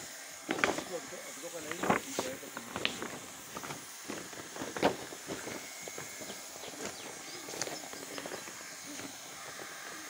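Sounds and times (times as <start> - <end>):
hot-air gun hiss: 0.0 - 10.0
plastic liner knocking and crinkling: 0.5 - 0.9, 1.7 - 9.2.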